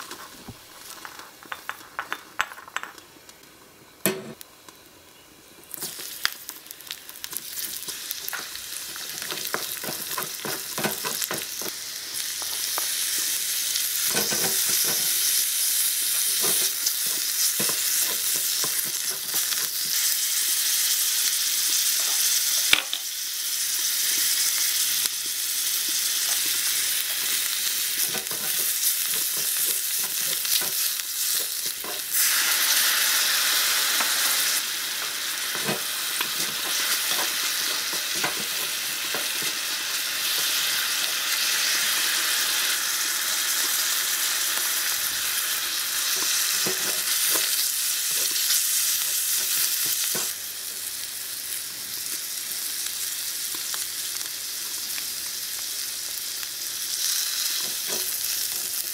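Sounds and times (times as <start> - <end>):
mushrooms sizzling in a wok: 0.0 - 58.9.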